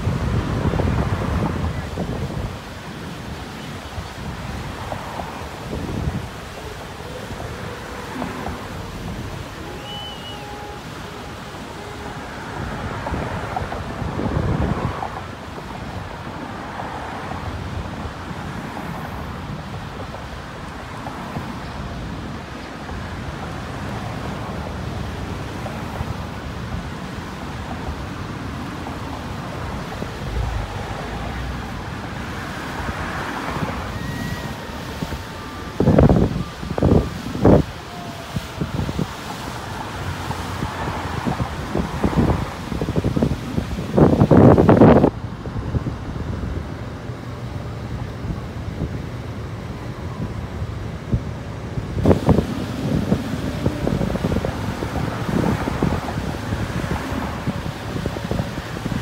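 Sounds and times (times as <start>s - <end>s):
motorboats running at speed: 0.0s - 59.0s
wind buffeting microphone: 0.0s - 59.0s.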